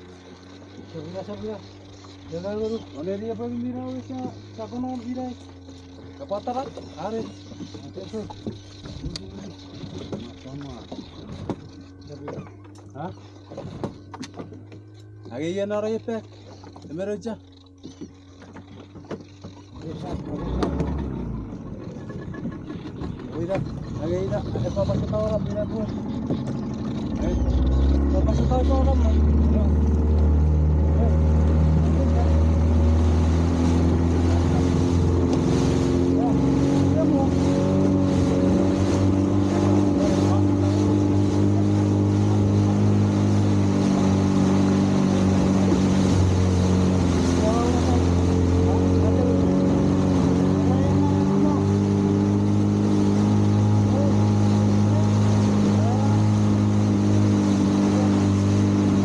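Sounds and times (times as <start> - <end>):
outboard motor running: 0.0 - 59.0
water rushing past hull: 0.0 - 59.0
rushing water hiss: 30.3 - 59.0.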